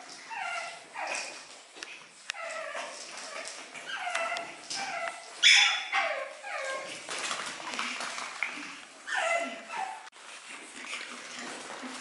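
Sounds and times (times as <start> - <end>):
puppies yipping: 0.0 - 7.1, 9.0 - 10.1.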